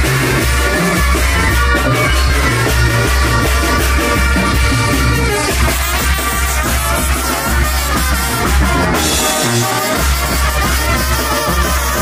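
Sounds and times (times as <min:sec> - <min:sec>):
pulsing bass line: 0:00.0 - 0:11.4
brass band music: 0:00.0 - 0:12.0
sustained horn notes: 0:00.0 - 0:12.0.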